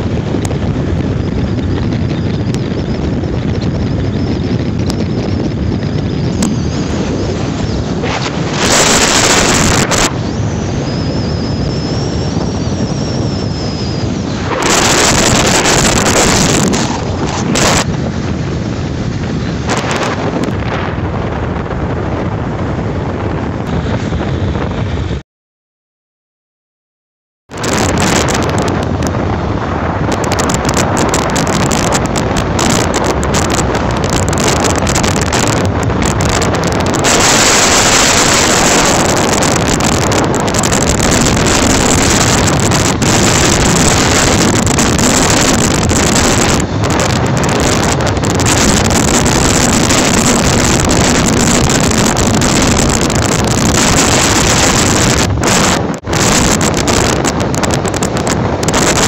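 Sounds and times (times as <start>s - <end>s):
wind rushing over microphone: 0.0s - 25.2s, 27.5s - 59.0s.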